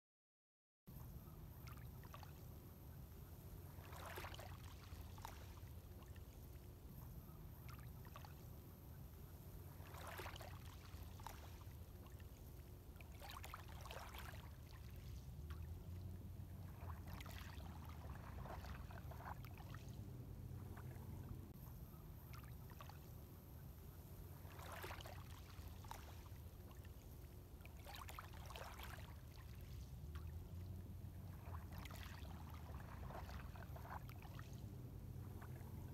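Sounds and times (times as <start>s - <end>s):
sea waves splashing: 3.6s - 6.7s, 9.6s - 21.4s, 24.3s - 26.8s, 27.6s - 35.9s
steady low rumble: 15.2s - 22.3s, 29.8s - 35.9s.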